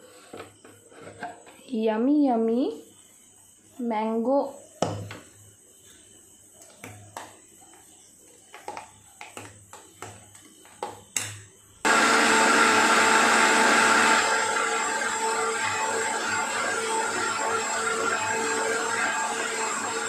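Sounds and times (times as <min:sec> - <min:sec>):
mixer grinder whining: 0:11.9 - 0:20.0.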